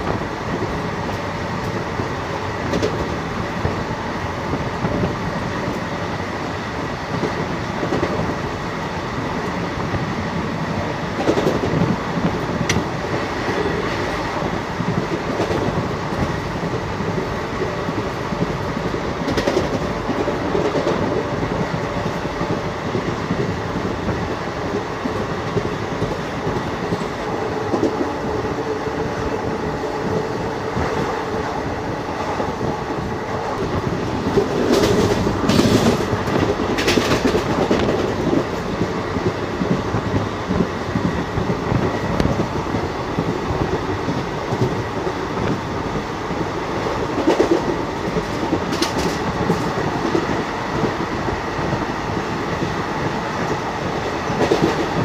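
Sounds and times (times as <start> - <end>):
train wheels rumbling on track: 0.0 - 55.0
sharp track clacks: 17.6 - 21.3, 33.4 - 40.6, 46.8 - 51.1.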